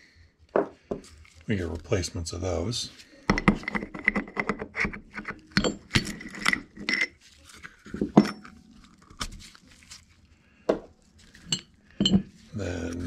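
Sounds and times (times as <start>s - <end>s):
metal parts clinking and scraping: 3.3s - 9.0s, 11.2s - 13.0s.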